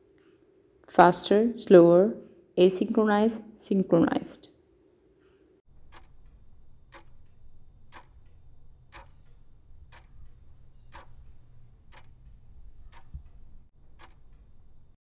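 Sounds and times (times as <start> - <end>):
clock ticking: 5.7 - 15.0
low hum: 5.7 - 15.0.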